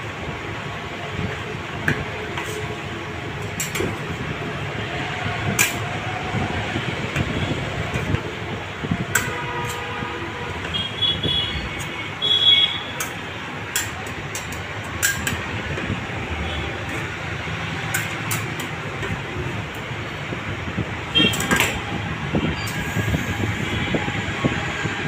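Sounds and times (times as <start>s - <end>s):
metal spatulas tapping and scraping: 1.3s - 4.3s, 5.5s - 6.0s, 9.0s - 12.1s, 12.8s - 19.9s, 21.2s - 21.9s.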